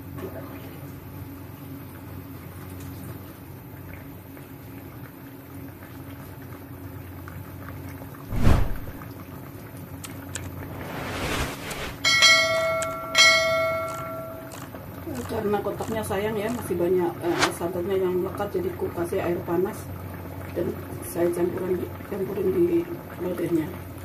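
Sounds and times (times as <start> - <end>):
whoosh: 8.3 - 9.0, 10.6 - 12.0, 17.2 - 17.6
bell dings: 12.1 - 14.6.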